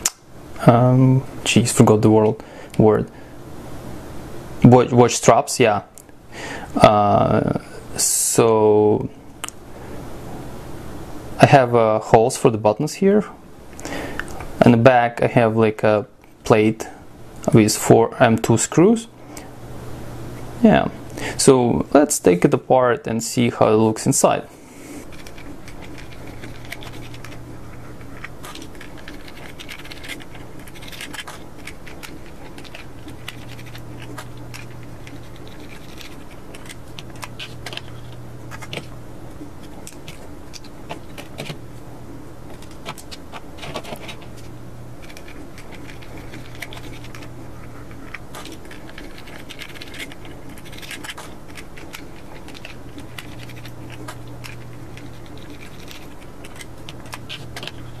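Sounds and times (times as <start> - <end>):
plastic handling noises: 25.0 - 58.0.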